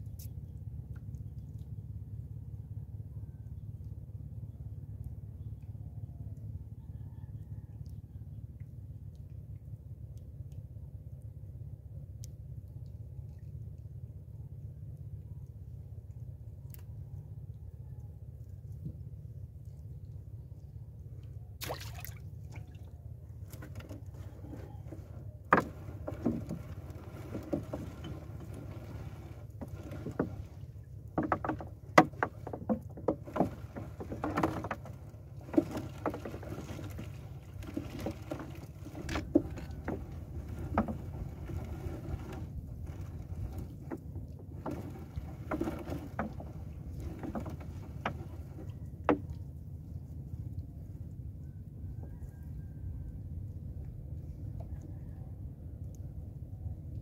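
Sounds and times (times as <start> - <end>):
water sloshing against boat hull: 14.6 - 57.0
light splashes: 18.4 - 50.9
knocks on wooden boat: 24.5 - 29.0, 31.2 - 34.9, 44.6 - 49.3
low rumble: 34.8 - 57.0.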